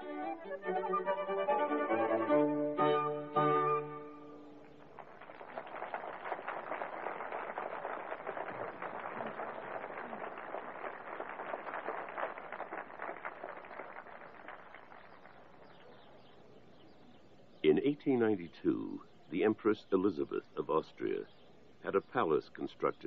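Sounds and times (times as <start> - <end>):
audience applauding: 4.6 - 15.9.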